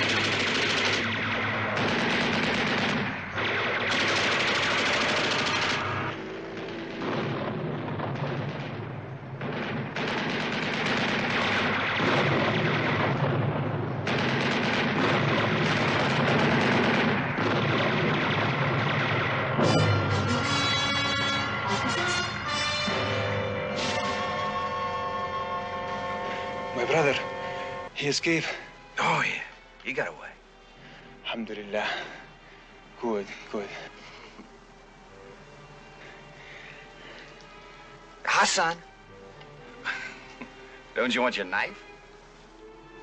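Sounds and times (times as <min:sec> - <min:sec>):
heavy machine gun firing bursts: 0:00.0 - 0:20.3.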